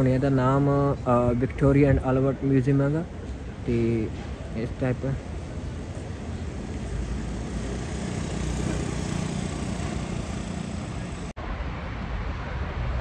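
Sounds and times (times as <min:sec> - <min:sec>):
passing road traffic: 0:00.0 - 0:13.0.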